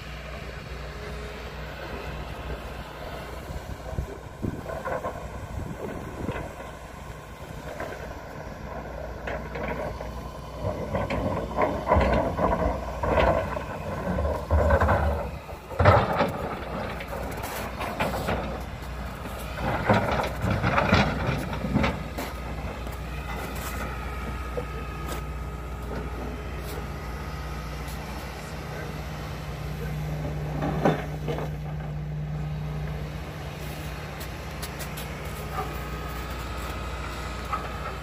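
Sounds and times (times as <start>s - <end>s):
excavator diesel engine droning: 0.0s - 38.0s
bucket scraping and clunking rocks: 7.6s - 28.3s, 30.2s - 32.1s, 32.8s - 38.0s.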